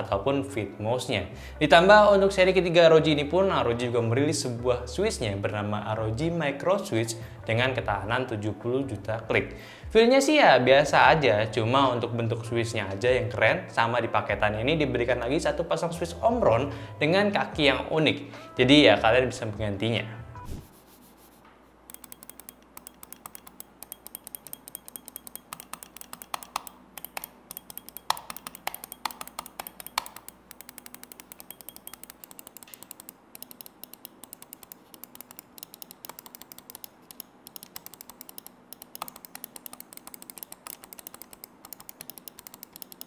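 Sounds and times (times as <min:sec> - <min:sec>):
mechanical switches clicking: 0:21.9 - 0:43.0.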